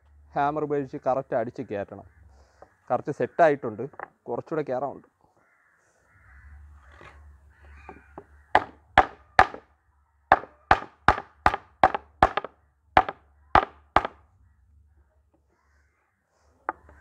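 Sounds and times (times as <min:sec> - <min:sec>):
hammer knocking on wood: 0:07.8 - 0:09.6, 0:10.3 - 0:14.2.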